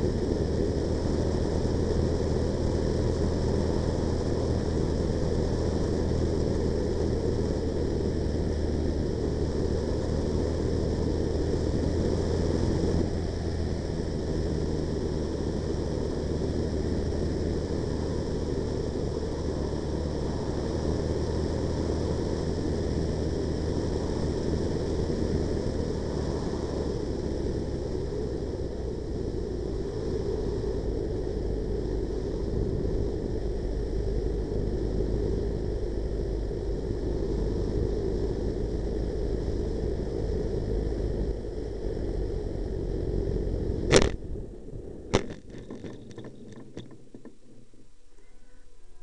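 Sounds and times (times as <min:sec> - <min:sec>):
wind and propeller noise: 0:00.0 - 0:48.2
model plane knocking on landing: 0:45.1 - 0:47.4.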